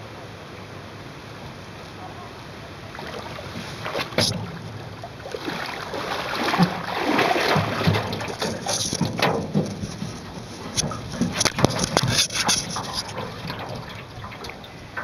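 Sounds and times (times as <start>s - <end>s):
wind and water noise: 0.0s - 15.0s
short thumps: 4.0s - 4.7s.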